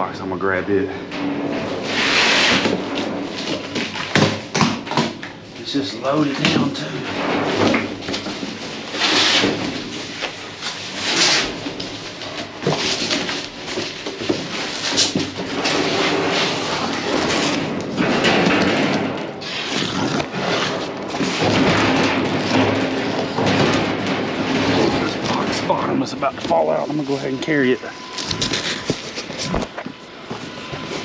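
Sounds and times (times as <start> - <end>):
thumps and knocks in dumpster: 1.1 - 5.5, 6.1 - 19.5, 20.3 - 26.7
cardboard boxes scraping and rustling: 7.6 - 17.6, 28.1 - 31.0.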